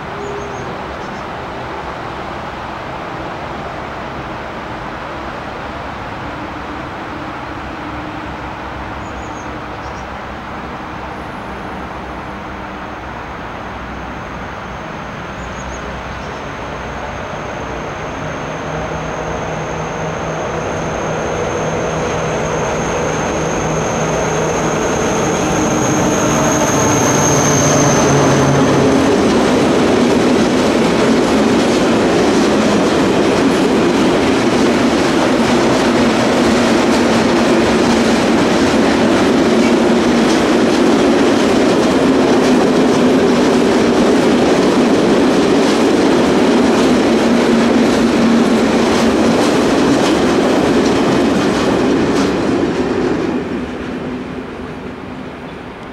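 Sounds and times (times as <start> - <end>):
diesel locomotive engine: 0.0 - 55.9
thin high whine: 16.6 - 29.6.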